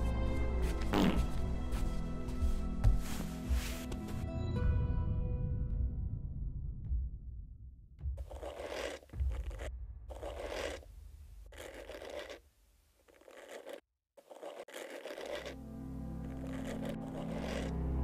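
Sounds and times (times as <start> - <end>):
hairbrush scraping through hair: 8.2 - 10.9, 11.5 - 12.4, 13.1 - 15.6, 16.3 - 17.8.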